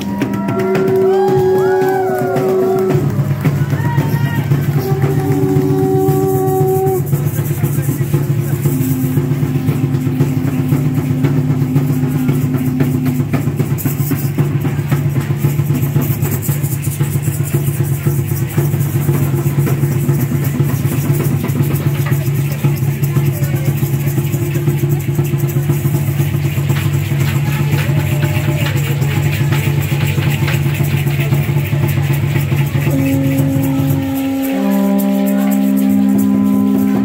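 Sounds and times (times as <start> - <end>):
long trumpet-like note: 0.0 - 3.4, 4.6 - 13.6, 32.9 - 37.0
large drum rolling: 0.0 - 37.0.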